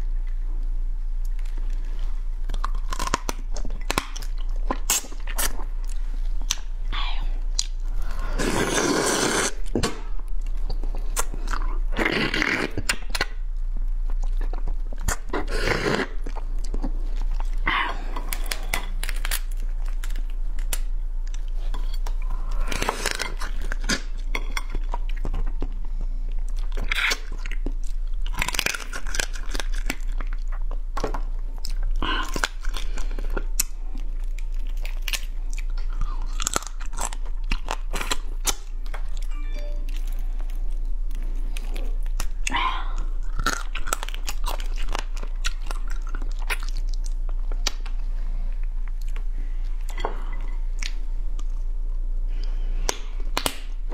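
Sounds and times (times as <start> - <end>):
low mains hum: 0.0 - 53.9
chewing and crunching crab shell: 1.2 - 6.7, 7.5 - 51.8.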